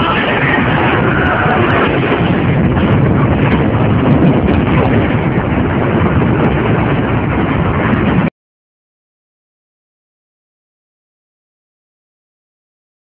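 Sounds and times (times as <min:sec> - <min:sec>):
crash and explosions rumble: 0:00.0 - 0:08.3.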